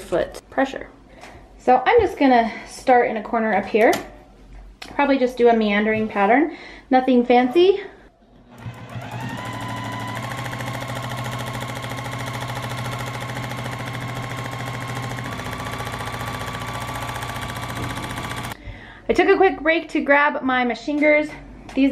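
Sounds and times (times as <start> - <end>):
sewing machine stitching: 8.4 - 18.6.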